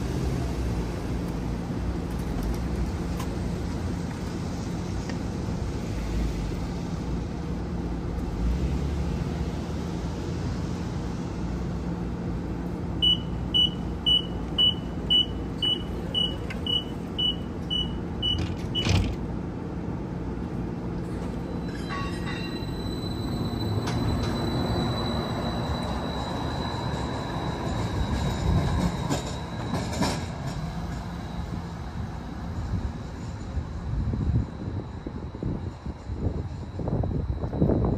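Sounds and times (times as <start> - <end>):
tram electrical hum: 0.0 - 37.9
tram motor whine: 0.0 - 37.9
short high warning beeps: 13.0 - 18.4.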